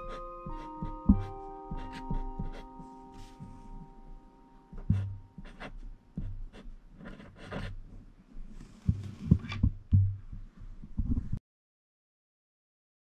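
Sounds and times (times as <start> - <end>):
marker scratching on paper: 0.0 - 3.4, 4.8 - 7.8
soft low thumps: 3.4 - 6.6, 8.4 - 11.4.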